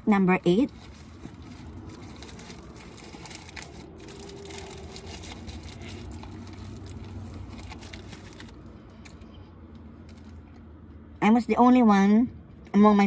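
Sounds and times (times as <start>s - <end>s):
low steady hum: 0.0s - 13.0s
paper wrapper crinkling: 0.5s - 9.3s.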